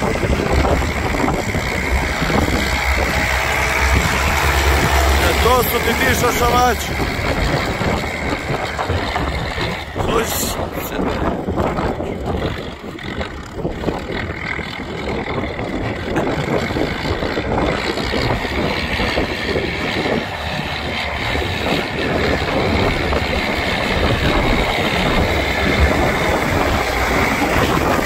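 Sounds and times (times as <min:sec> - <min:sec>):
diesel tractors running: 0:00.0 - 0:28.0.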